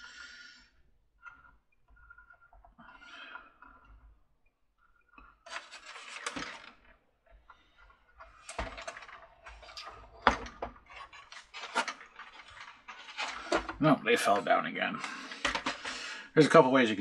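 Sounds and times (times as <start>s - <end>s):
plastic clattering and rustling: 5.0s - 16.1s.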